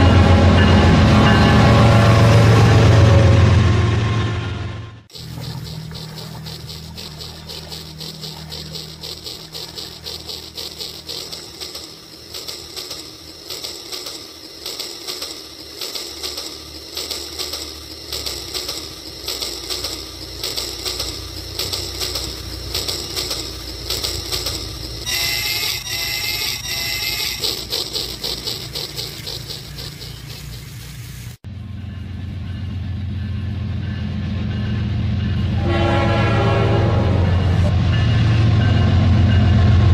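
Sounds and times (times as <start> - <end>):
toy train clicking rattle: 5.1 - 31.4
short wavering high tones: 21.4 - 30.4.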